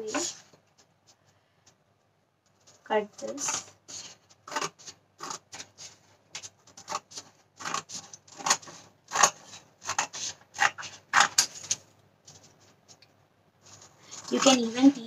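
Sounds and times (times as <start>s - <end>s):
scissors snipping paper: 3.2s - 12.4s, 13.7s - 15.0s.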